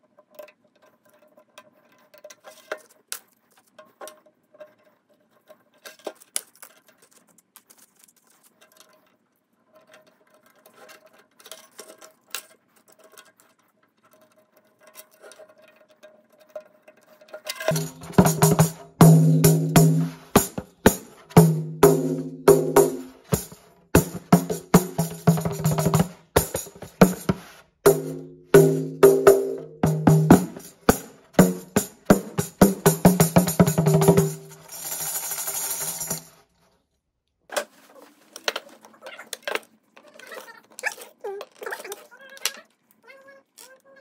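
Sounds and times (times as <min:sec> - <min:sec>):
faint clicks and scrapes: 0:00.0 - 0:17.7, 0:36.3 - 0:44.0
hand drum with jingles: 0:17.6 - 0:36.4
jingles shaking: 0:30.4 - 0:36.4.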